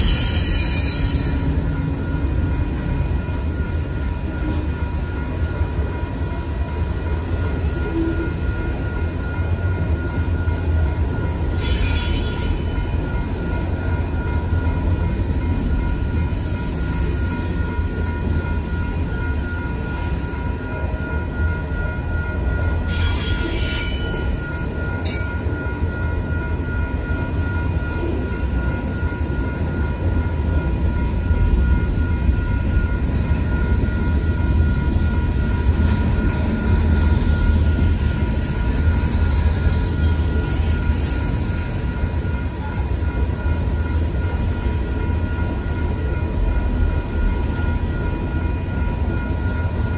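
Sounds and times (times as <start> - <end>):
high wheel squeals: 0.0 - 1.8, 11.5 - 13.9, 16.2 - 18.0, 22.8 - 24.4
freight train wheels rumbling on rails: 0.0 - 49.9
two-tone crossing bell: 0.0 - 49.9.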